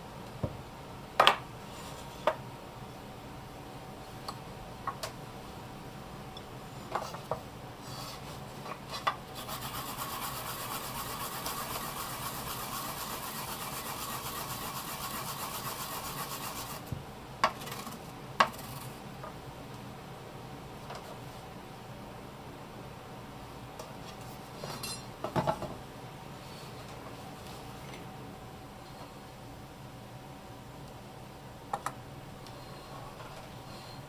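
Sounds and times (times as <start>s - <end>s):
root grated on a grater: 9.4s - 16.9s.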